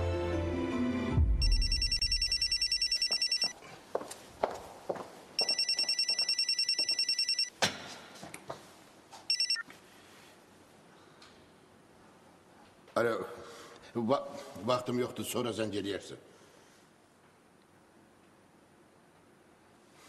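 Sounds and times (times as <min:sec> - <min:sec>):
mobile phone ringing trill: 0:01.4 - 0:03.6, 0:05.4 - 0:07.5, 0:09.3 - 0:09.6.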